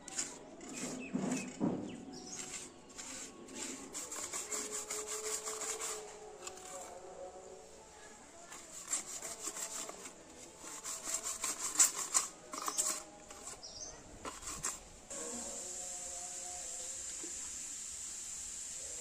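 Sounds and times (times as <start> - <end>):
trowel scraping wet cement: 0.0 - 7.1, 8.4 - 14.9
steady hiss: 14.8 - 19.0.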